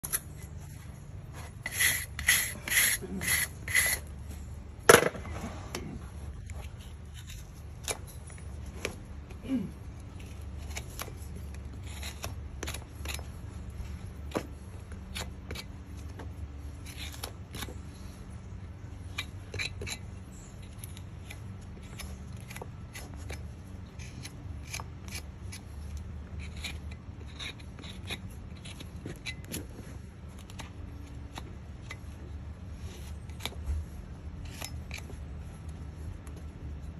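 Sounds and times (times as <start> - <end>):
rasp scraping horse hoof: 0.0 - 9.4, 10.0 - 36.9
knife cutting hoof: 1.3 - 4.1, 6.4 - 29.7.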